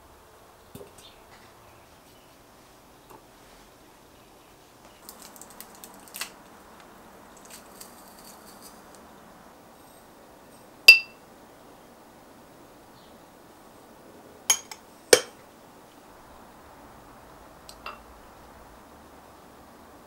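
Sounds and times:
sharp ringing clink: 10.9s - 11.2s.

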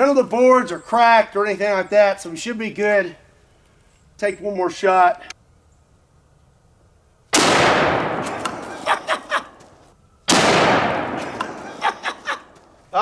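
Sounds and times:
rifle shot with long echo: 7.3s - 8.8s, 10.3s - 11.7s.

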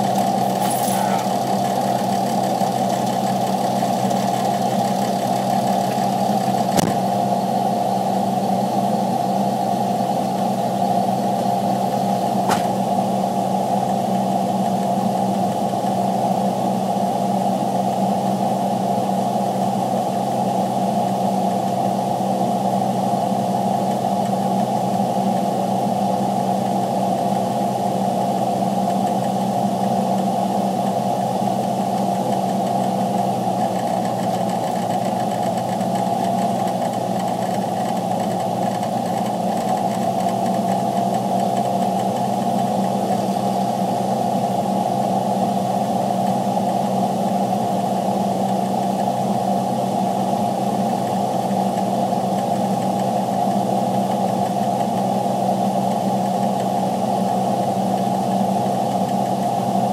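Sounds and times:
truck engine running: 0.0s - 16.7s, 28.8s - 49.2s.

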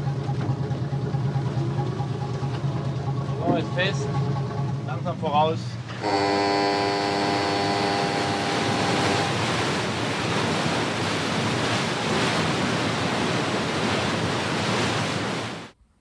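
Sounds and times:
water rushing and churning: 0.0s - 15.8s
horn steady tone: 5.9s - 10.0s.

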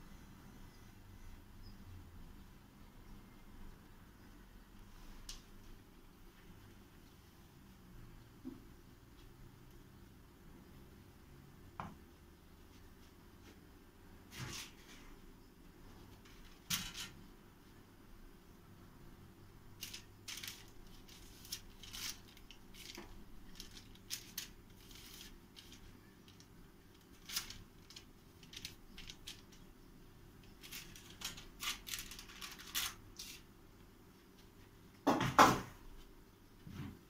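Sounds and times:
baking paper crinkling: 19.8s - 29.8s, 30.4s - 33.5s.

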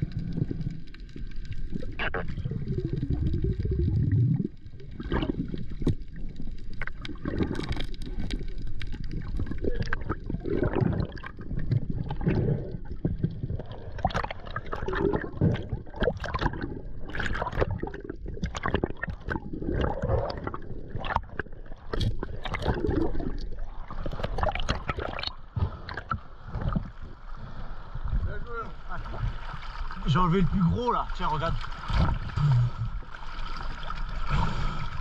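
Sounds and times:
knocks and clicks underwater: 0.0s - 27.2s
water sloshing and gurgling: 0.0s - 35.0s.

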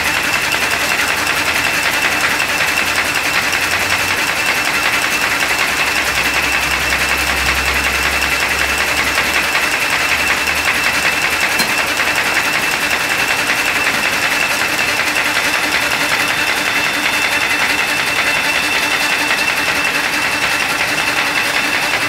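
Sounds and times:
paper folding machine clatter: 11.8s - 22.0s.

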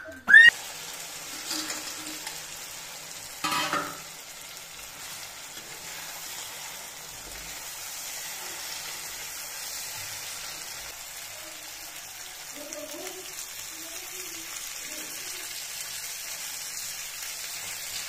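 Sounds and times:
fish sizzling in oil: 0.4s - 18.0s
metal spoon stirring: 1.3s - 2.4s.

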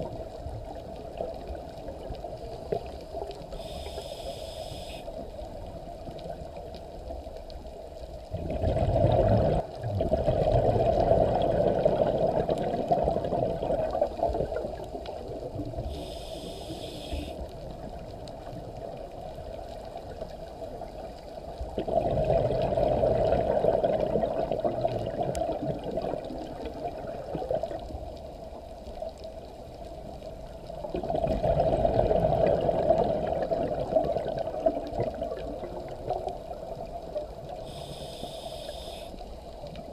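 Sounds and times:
regulator inhalation hiss: 3.5s - 5.2s, 15.8s - 17.4s, 37.6s - 39.3s
diver exhaling bubbles: 8.3s - 14.6s, 21.8s - 27.7s, 30.9s - 35.9s.

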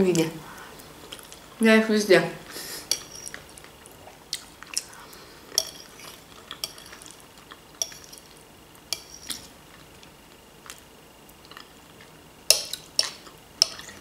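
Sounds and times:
fork clinking against plate: 2.9s - 3.4s, 5.6s - 7.1s, 7.8s - 8.3s.

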